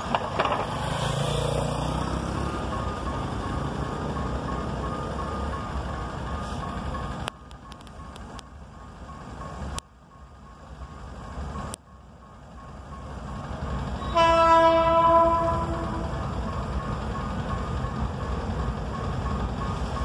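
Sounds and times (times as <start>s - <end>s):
train rumbling: 0.0s - 20.0s
locomotive horn chord: 14.0s - 16.2s.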